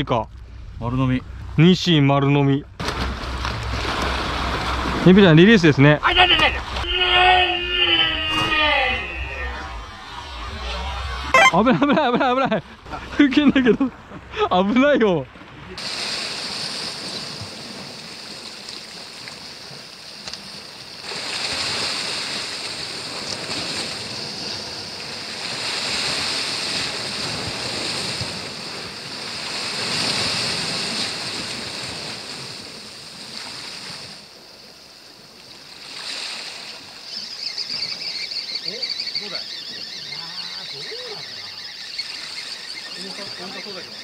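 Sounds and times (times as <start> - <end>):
waves washing on rocky shore: 15.8 - 34.3.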